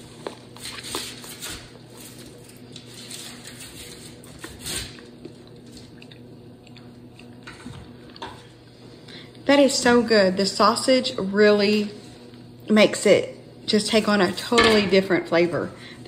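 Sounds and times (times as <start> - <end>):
faint steady hum: 0.0 - 16.0
quiet chewing: 4.3 - 9.4.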